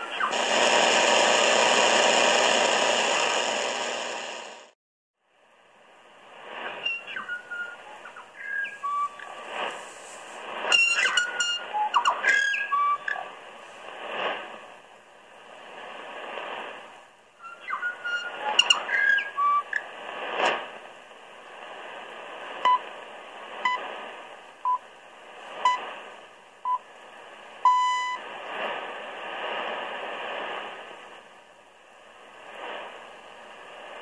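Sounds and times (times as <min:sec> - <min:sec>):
radio time pips: 0:00.0 - 0:04.8
shortwave radio broadcast: 0:00.0 - 0:04.8, 0:06.4 - 0:14.8, 0:17.6 - 0:21.0, 0:21.6 - 0:31.3, 0:32.3 - 0:34.0
radio hiss and static: 0:00.0 - 0:34.0.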